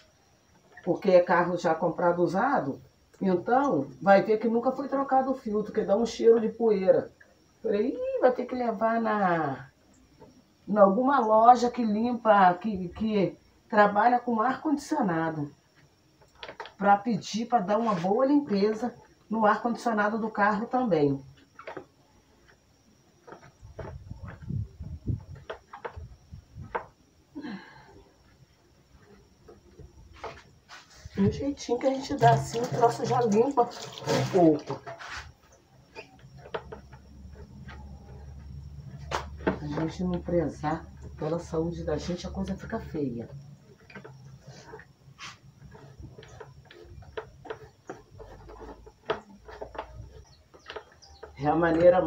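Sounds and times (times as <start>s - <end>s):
sponge rubbing fan blades: 28.7s - 52.0s
sponge scrubbing plastic grille: 31.8s - 35.4s.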